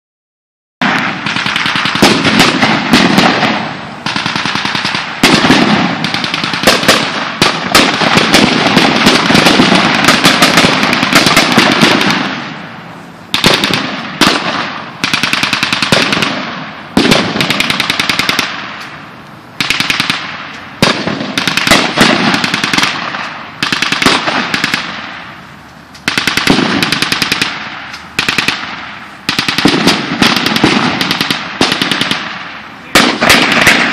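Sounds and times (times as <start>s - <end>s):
automatic gunfire bursts: 0.8s - 12.5s, 13.3s - 18.6s, 19.6s - 25.2s, 26.0s - 33.9s.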